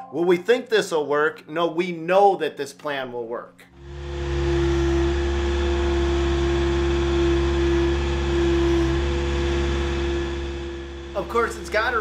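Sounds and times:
loader engine running: 3.8 - 12.0.

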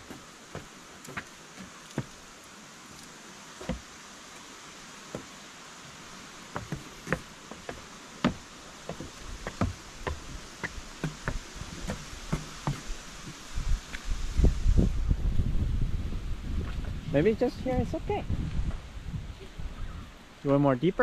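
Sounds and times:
footsteps on wooden stairs: 0.0 - 2.3, 3.6 - 3.9, 5.1 - 5.3, 6.4 - 14.0.

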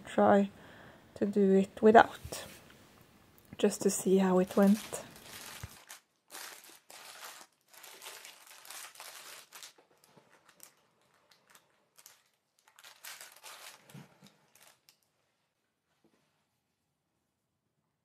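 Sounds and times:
paper and gloves crinkling: 3.6 - 15.1.

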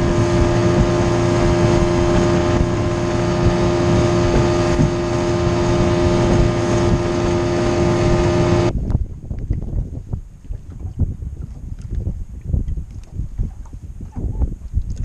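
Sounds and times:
outboard motor droning: 0.0 - 8.7.

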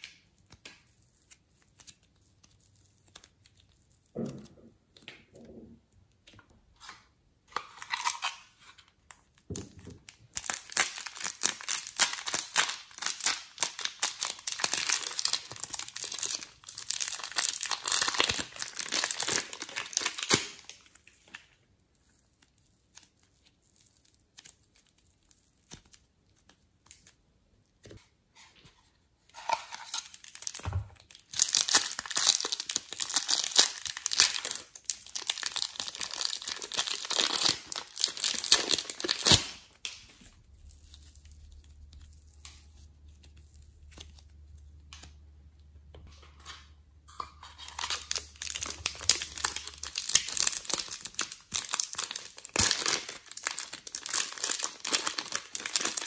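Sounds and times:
plastic packaging crinkling and tearing: 7.5 - 27.2, 29.3 - 45.2, 46.2 - 56.0
plastic bag crinkling: 9.9 - 21.1, 29.3 - 44.3, 47.4 - 56.0.

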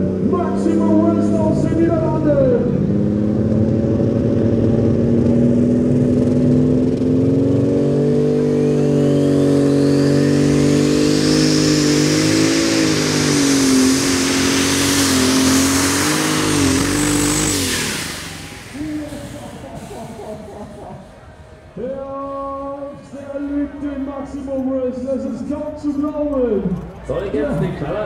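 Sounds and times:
high turbo whine: 0.0 - 28.0
tractor engine running flat out: 0.0 - 28.0.

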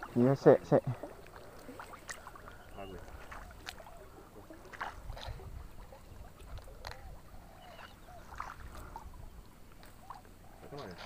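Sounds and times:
person wading through water: 0.0 - 11.0.

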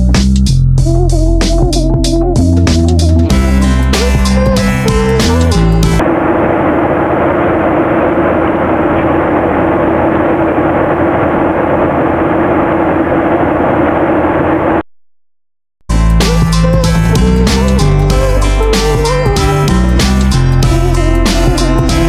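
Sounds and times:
steady droning tone: 3.0 - 14.8, 15.9 - 22.0
engine and airflow rush: 3.3 - 14.9.

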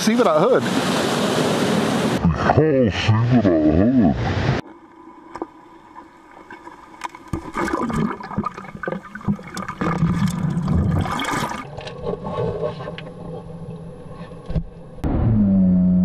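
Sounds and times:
seawater splashing and sloshing: 5.0 - 12.7.

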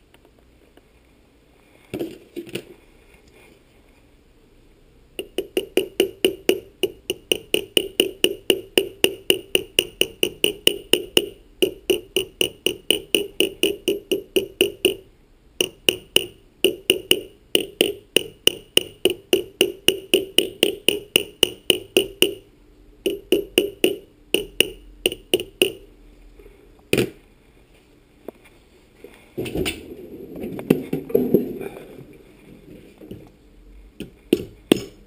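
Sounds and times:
hammer tapping on metal: 5.2 - 25.9, 34.0 - 35.0
rustling handling noise: 26.1 - 34.7.

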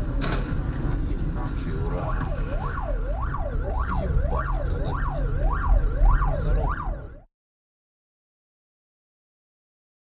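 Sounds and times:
car rumbling on road: 0.0 - 7.2
emergency siren wailing: 1.3 - 7.3.

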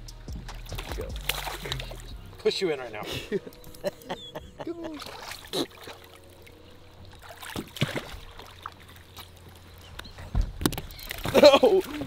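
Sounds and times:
fish splashing: 0.6 - 2.1, 4.9 - 9.8
water lapping against boat: 0.6 - 3.9, 4.6 - 12.0.

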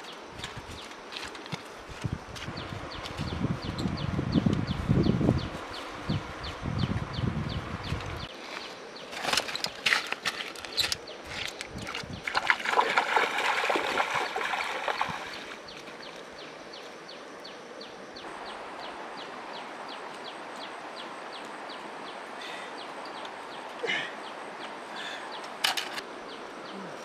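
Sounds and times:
feet splashing through water: 11.3 - 16.3.

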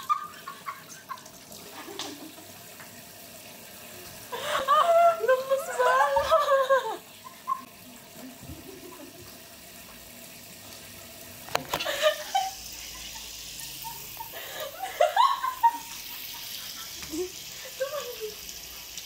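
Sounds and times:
tap water running into sink: 0.0 - 19.0.

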